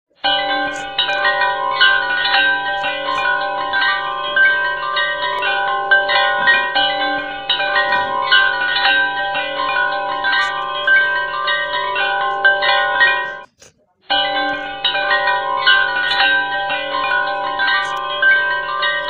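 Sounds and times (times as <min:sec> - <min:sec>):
bell-like chime melody: 0:00.2 - 0:13.5, 0:14.1 - 0:19.0.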